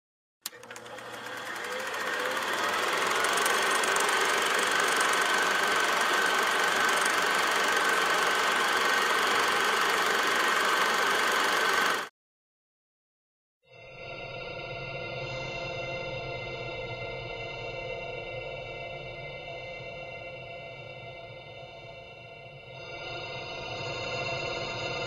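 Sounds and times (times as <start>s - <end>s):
film projector whirring: 0.4s - 12.1s
projector click: 0.5s - 12.1s.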